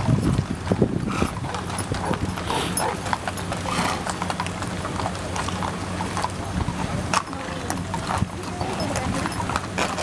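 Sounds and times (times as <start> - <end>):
horse hooves clip-clopping on road: 0.0 - 10.0.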